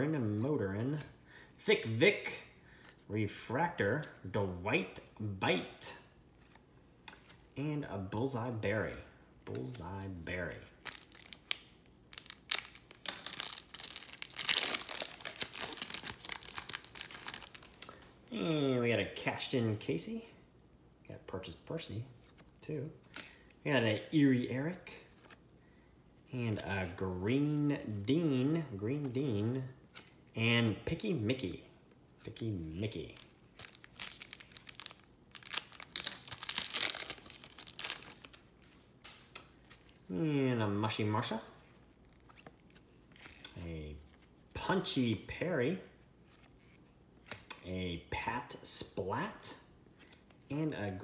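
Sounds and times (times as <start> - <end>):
card packs crinkling and rustling: 10.7 - 18.2, 32.9 - 40.1.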